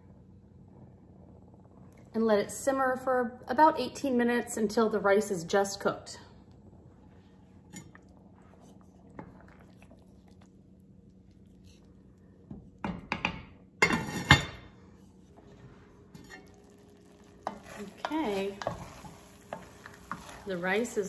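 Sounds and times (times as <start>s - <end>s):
faint steady hum: 0.0s - 21.0s
wooden spoon scraping a pot: 15.0s - 21.0s.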